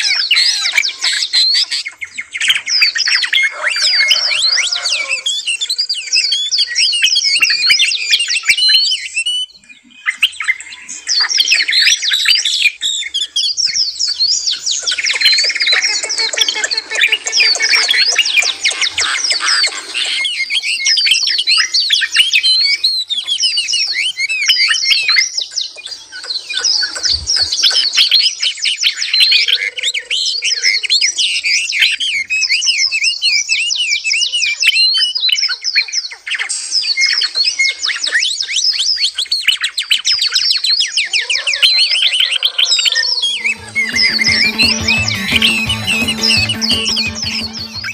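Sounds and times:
songbirds chirping and warbling: 0.0s - 34.6s.

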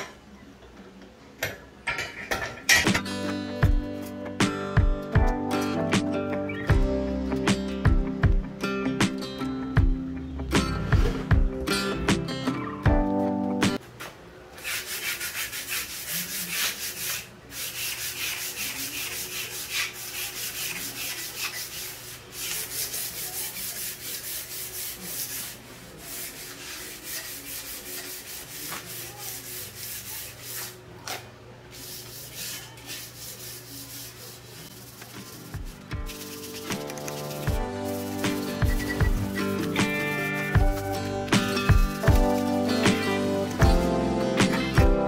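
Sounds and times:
sanding block on steel tubing: 14.6s - 30.8s, 31.8s - 35.5s, 36.1s - 41.7s.

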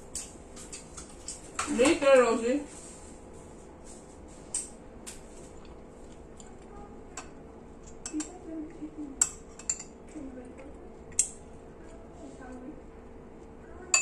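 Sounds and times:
faint low voices: 8.1s - 9.2s, 13.5s - 14.0s.

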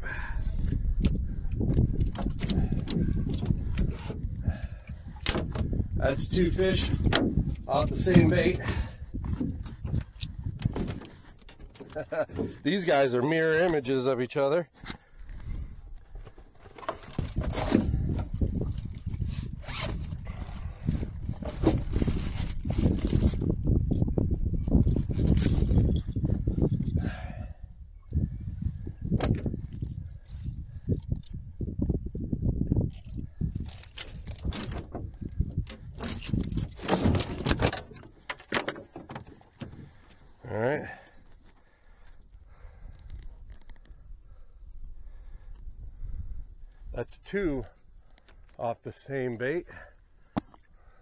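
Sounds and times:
wind rumbling on microphone: 0.0s - 11.8s, 15.2s - 38.3s, 41.9s - 48.1s
tackle clattering on boat deck: 5.2s - 12.6s, 33.6s - 40.0s
rustling and scraping handling: 14.8s - 26.9s.

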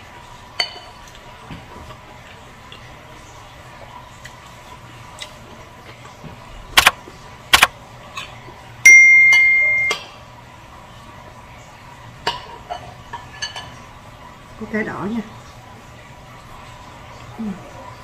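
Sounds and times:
notification bell chime: 8.9s - 10.0s.

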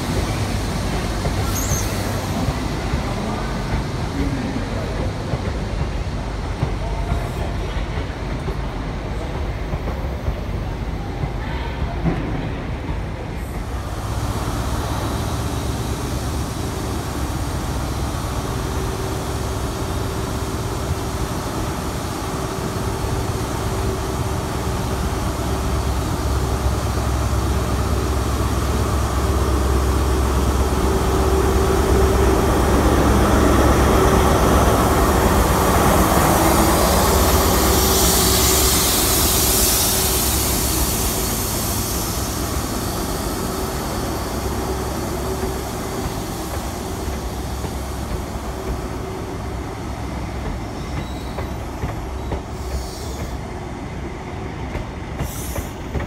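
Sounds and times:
hiss: 0.0s - 4.2s, 35.6s - 56.0s
diesel train engine drone: 0.0s - 56.0s.

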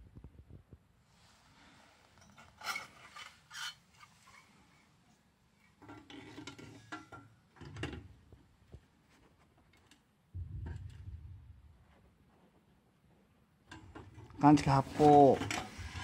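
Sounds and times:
metal clattering and scraping: 2.2s - 4.6s, 5.8s - 8.2s, 10.4s - 12.6s, 13.7s - 16.0s
low rumble: 10.3s - 12.2s.

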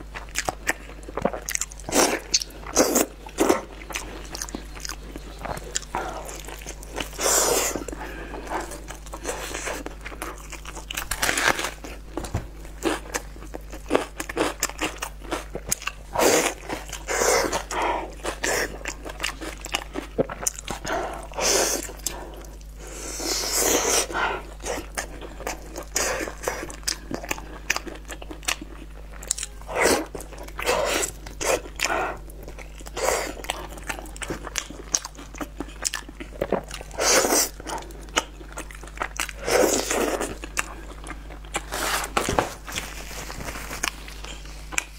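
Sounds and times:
crunching and chewing: 0.0s - 44.9s.

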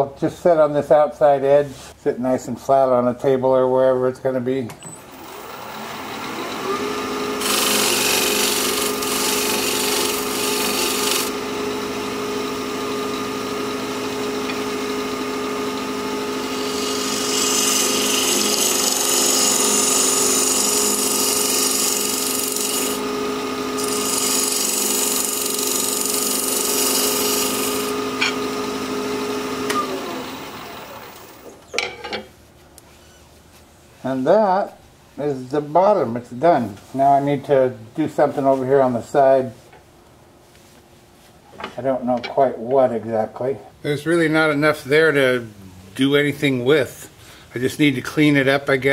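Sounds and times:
lathe motor hum: 5.1s - 31.6s
gouge cutting hissing shavings: 7.4s - 11.3s, 16.6s - 23.0s, 23.8s - 27.9s.

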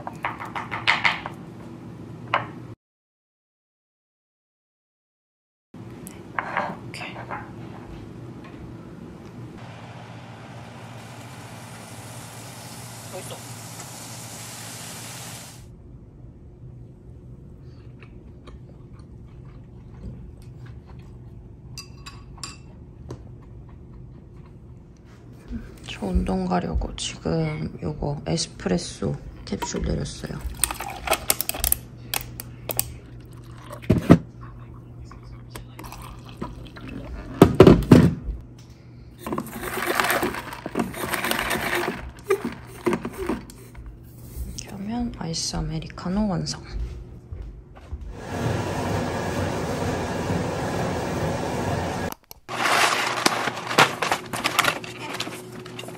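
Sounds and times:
low room hum: 5.8s - 55.9s
ice clunking: 29.6s - 34.2s, 39.2s - 43.6s, 52.5s - 55.9s.

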